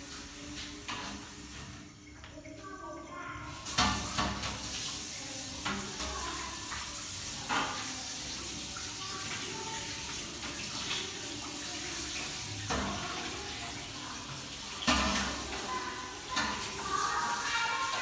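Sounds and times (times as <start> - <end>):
tap running into sink: 3.6 - 9.4, 14.7 - 15.7.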